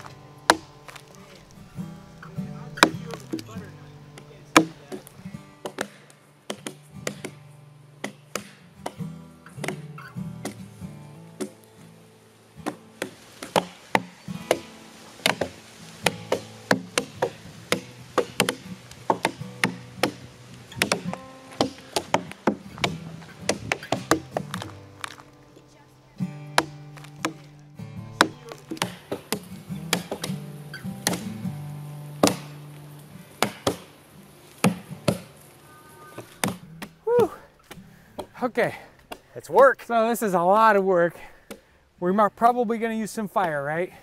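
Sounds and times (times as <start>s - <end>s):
axes chopping into a log: 0.5s - 1.1s, 2.8s - 3.5s, 4.6s - 7.4s, 8.0s - 9.0s, 9.6s - 10.7s, 11.4s - 11.6s, 12.6s - 25.2s, 26.5s - 27.6s, 28.2s - 31.4s, 32.2s - 32.6s, 33.4s - 33.9s, 34.6s - 35.3s, 36.3s - 38.4s.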